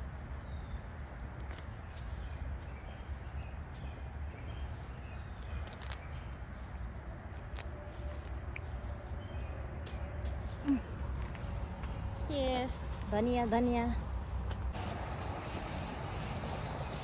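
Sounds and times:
roots snapping: 0.0s - 13.1s
leaves and stems rustling: 0.0s - 17.0s
steady low rumble: 0.0s - 17.0s.

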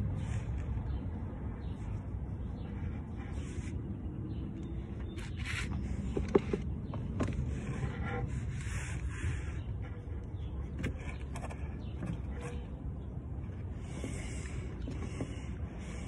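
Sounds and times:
scraping and rubbing handling: 4.9s - 16.0s.

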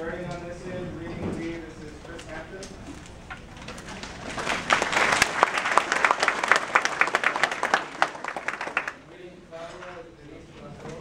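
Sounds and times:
audience applauding: 3.8s - 9.0s.

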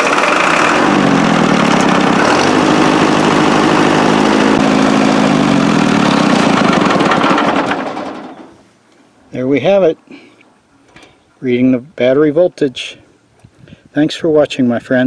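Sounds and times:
tractor engine idling: 0.0s - 8.7s.

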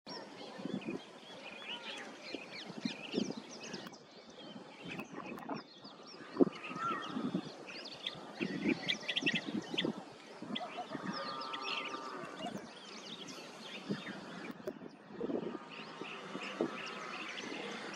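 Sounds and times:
low bird calls: 0.6s - 17.9s
birds chirping and whistling: 4.8s - 17.9s.

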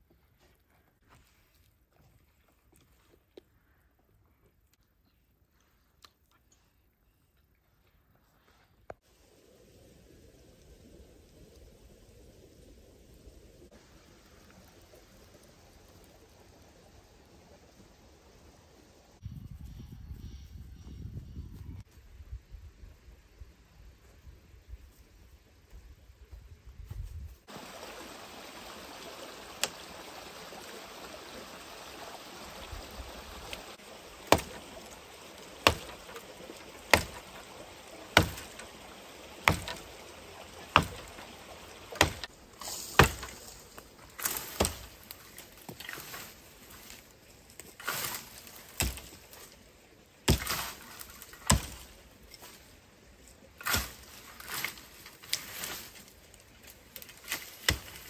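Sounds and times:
running water: 27.5s - 58.0s.

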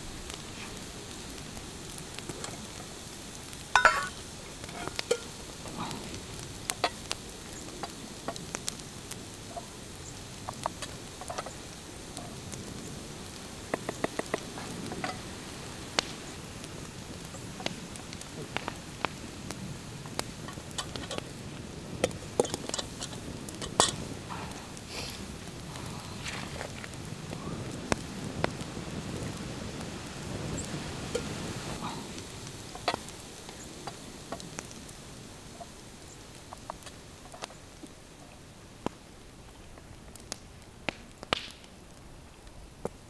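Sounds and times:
campfire hiss and crackle: 0.0s - 43.0s
metal spoons clinking on bowls: 3.8s - 4.1s.

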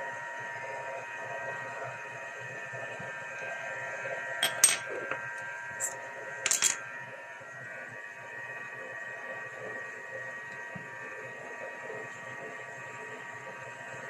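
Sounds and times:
steady machine hum: 0.0s - 14.0s
hard objects clinking: 4.4s - 4.9s, 5.8s - 6.8s.

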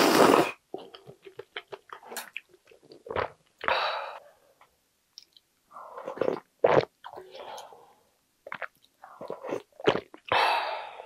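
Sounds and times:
slurping noodles and broth: 0.0s - 0.6s.

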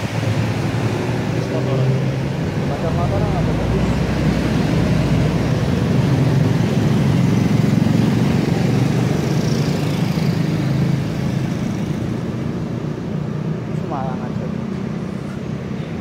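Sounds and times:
motorcycles passing on wet road: 0.0s - 12.8s
street traffic: 0.0s - 16.0s.

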